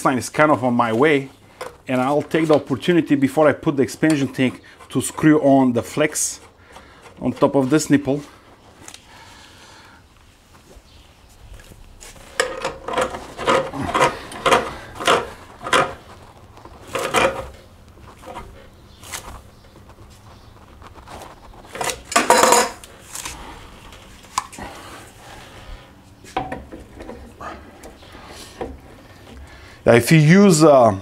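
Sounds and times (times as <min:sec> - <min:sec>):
threaded fittings scraping: 0:00.8 - 0:09.0, 0:12.2 - 0:22.2.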